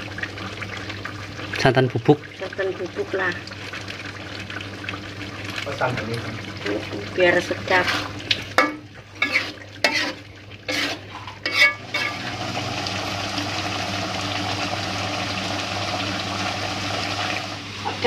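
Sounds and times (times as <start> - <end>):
stew simmering and sizzling: 0.0 - 18.0
metal spatula scraping wok: 7.6 - 12.3.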